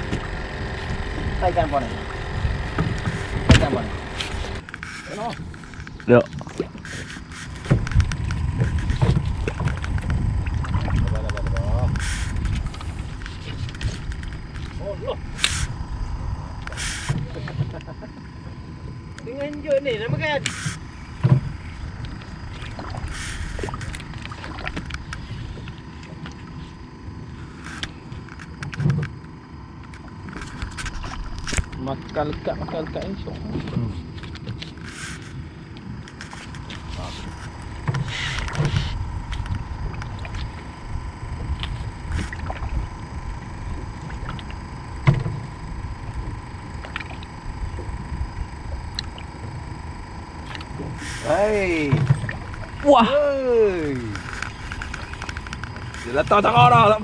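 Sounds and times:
knocks and water splashing: 0.0s - 4.6s, 7.5s - 11.6s, 21.1s - 21.6s, 43.7s - 45.5s, 51.7s - 52.9s
boat engine rumble: 0.0s - 57.0s.

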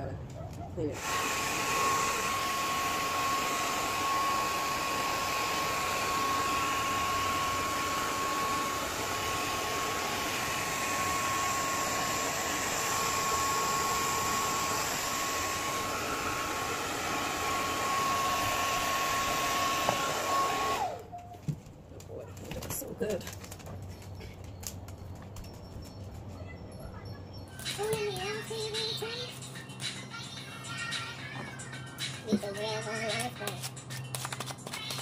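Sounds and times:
hair dryer running: 0.8s - 21.1s.

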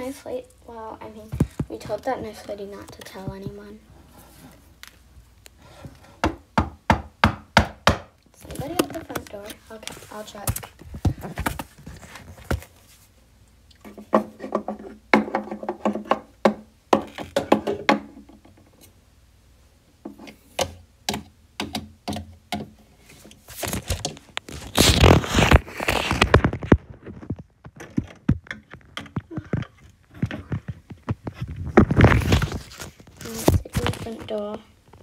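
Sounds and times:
rustling handling noise: 0.0s - 6.2s, 8.3s - 13.2s, 22.9s - 35.0s.

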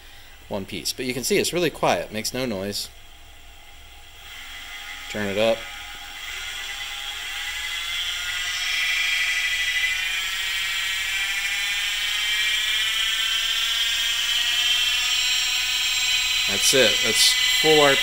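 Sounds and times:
milling machine spindle whine: 3.6s - 18.0s.

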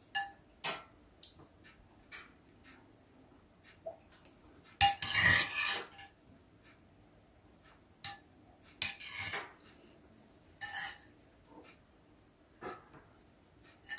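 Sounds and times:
spoons clinking in ceramic bowls: 4.8s - 6.1s, 10.6s - 11.1s.

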